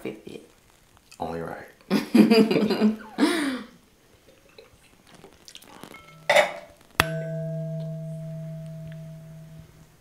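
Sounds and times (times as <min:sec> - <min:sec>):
ringing metallic strike: 0:06.0 - 0:10.0.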